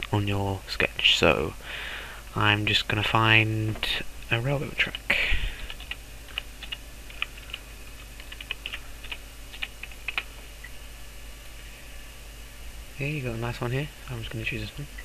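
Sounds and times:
steady low hum: 0.0s - 15.0s
keyboard typing: 4.8s - 10.4s.

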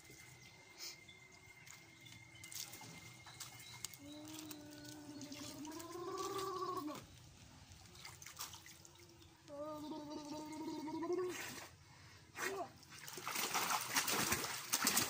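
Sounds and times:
water splashing and dripping: 1.3s - 9.6s, 12.8s - 15.0s
high wavering voice: 9.5s - 11.7s.

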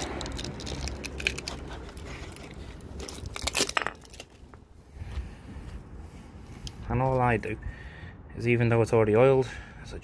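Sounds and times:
stiff plastic crinkling and clicking: 0.0s - 4.6s.

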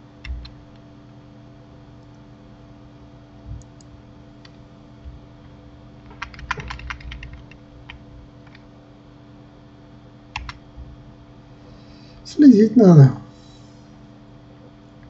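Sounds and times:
faint steady hum: 0.0s - 15.0s
keyboard key presses: 6.1s - 8.6s, 10.4s - 10.6s.

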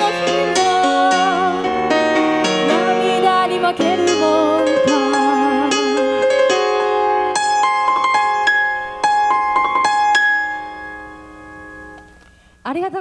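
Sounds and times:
woman singing with vibrato: 0.0s - 6.4s
piano notes: 0.0s - 12.6s.

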